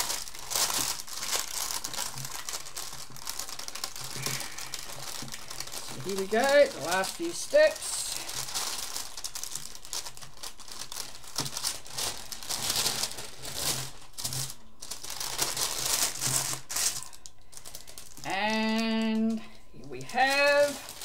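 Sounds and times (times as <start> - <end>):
paper crinkling and rustling: 0.0 - 21.0.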